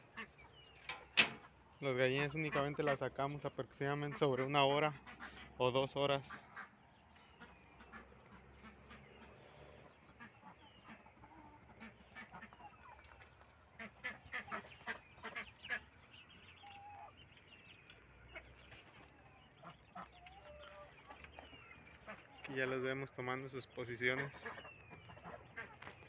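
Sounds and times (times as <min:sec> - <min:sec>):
chickens clucking: 0:00.0 - 0:26.0
ducks quacking: 0:00.0 - 0:26.0.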